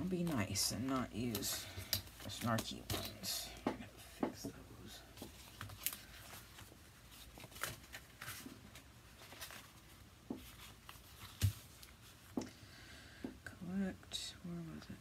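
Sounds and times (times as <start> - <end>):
paper rustling and tapping: 0.1 - 4.6, 5.2 - 12.5.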